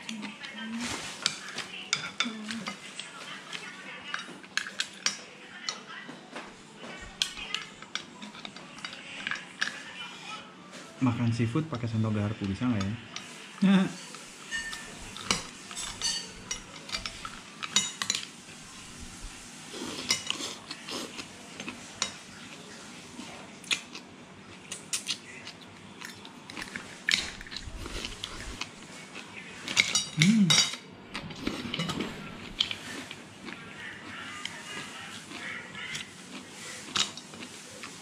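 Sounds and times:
cutlery clinking on ceramic plate: 0:14.0 - 0:18.3.

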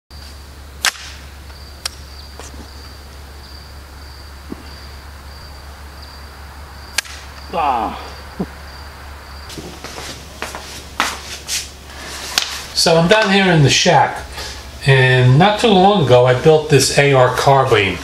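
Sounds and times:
rifle shots cracking: 0:00.8 - 0:01.3.

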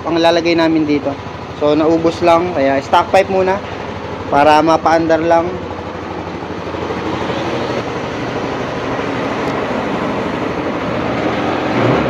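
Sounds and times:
scooter engine idling: 0:00.0 - 0:12.0.

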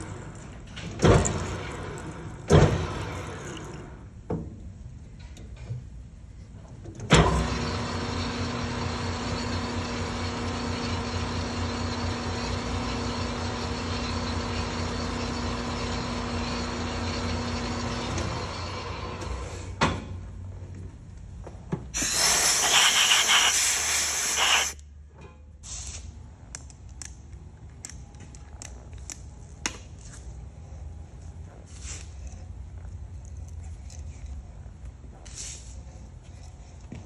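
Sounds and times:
compressed air hissing: 0:22.0 - 0:24.8.

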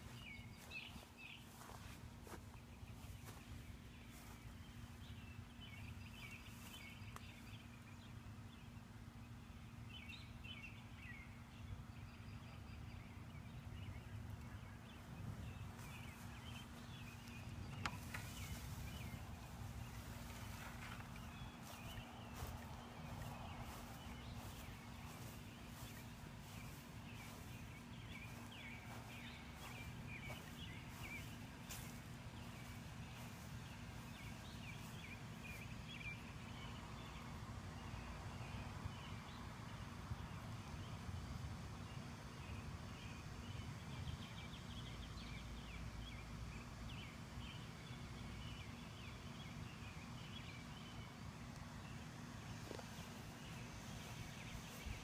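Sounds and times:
small birds chirping: 0:00.0 - 0:41.3, 0:42.1 - 0:55.0
low uneven rumble: 0:13.9 - 0:37.3.

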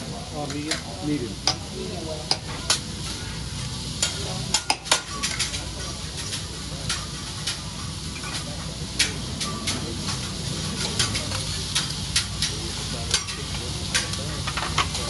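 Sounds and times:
food sizzling on a griddle: 0:00.0 - 0:15.0
spatula clicking on griddle: 0:04.0 - 0:15.0.

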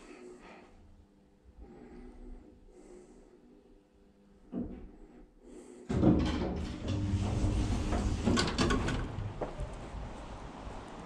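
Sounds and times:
lift doors sliding open: 0:05.9 - 0:11.0.

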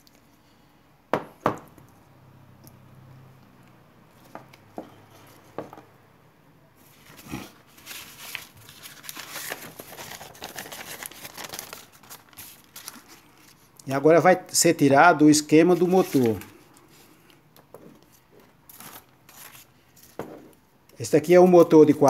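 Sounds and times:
paper crinkling and rustling: 0:06.9 - 0:13.8, 0:15.7 - 0:17.2, 0:17.8 - 0:20.3.

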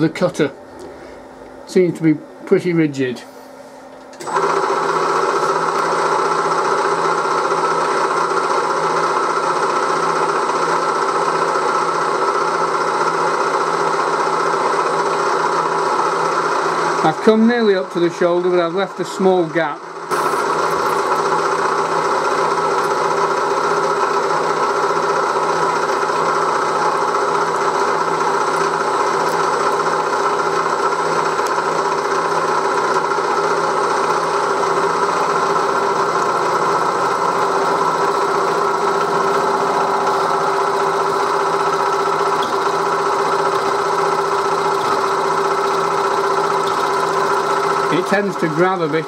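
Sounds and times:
milling machine cutting metal: 0:04.2 - 0:11.4, 0:14.1 - 0:49.0
coolant flowing: 0:20.1 - 0:49.0.

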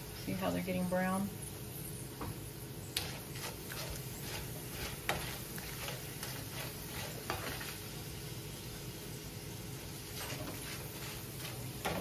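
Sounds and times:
tortilla pieces sizzling in oil: 0:00.0 - 0:12.0
spatula tapping and scraping pan: 0:03.0 - 0:07.8, 0:10.2 - 0:12.0.

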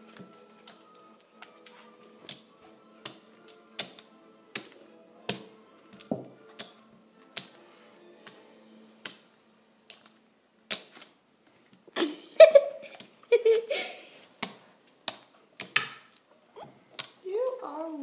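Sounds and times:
faint background music: 0:00.0 - 0:18.0.

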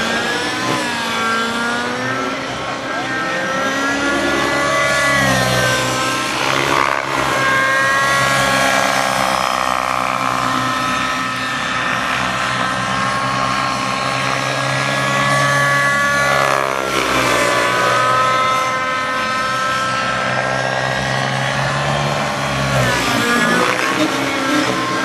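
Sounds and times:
rc helicopter engine whine: 0:00.0 - 0:25.0.

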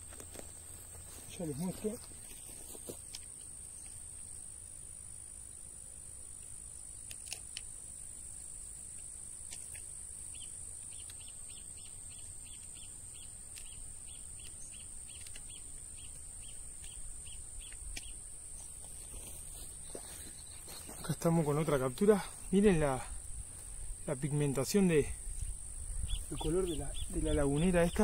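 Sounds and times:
insects trilling: 0:00.0 - 0:28.0
bird chirping: 0:10.3 - 0:18.2, 0:25.9 - 0:28.0.

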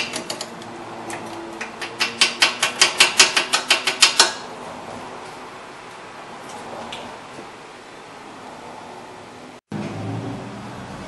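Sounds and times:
hammer tapping on metal: 0:01.6 - 0:04.4.

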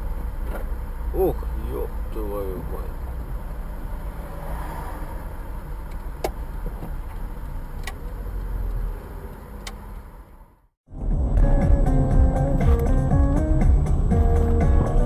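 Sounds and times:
car idling from inside cabin: 0:00.0 - 0:03.8.

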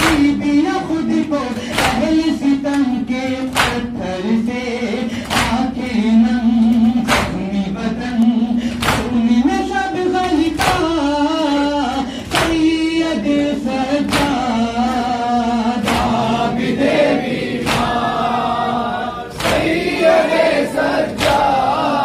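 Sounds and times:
men chanting a lament: 0:00.0 - 0:22.0
group chest-beating strikes: 0:01.5 - 0:02.3, 0:03.4 - 0:04.0, 0:05.1 - 0:05.7, 0:07.0 - 0:07.5, 0:08.6 - 0:09.2, 0:11.9 - 0:12.8, 0:15.8 - 0:18.5, 0:19.3 - 0:21.8.

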